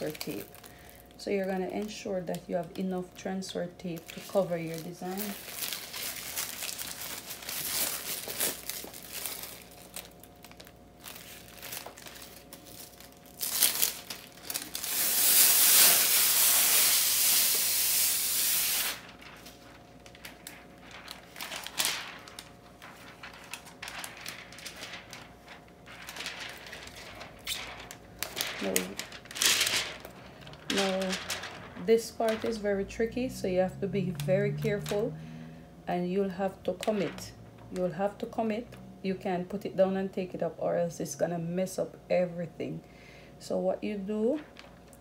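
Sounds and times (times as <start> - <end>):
plastic sheet crinkling: 0.0 - 35.2, 36.2 - 38.7, 44.2 - 45.0
sticky tape tearing hiss: 13.4 - 19.5, 26.0 - 30.2.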